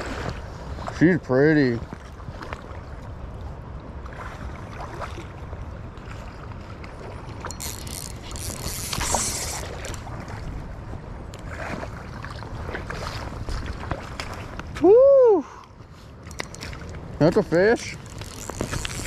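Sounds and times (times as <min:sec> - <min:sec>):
spinning reel cranking: 0:07.5 - 0:09.6, 0:18.0 - 0:19.0.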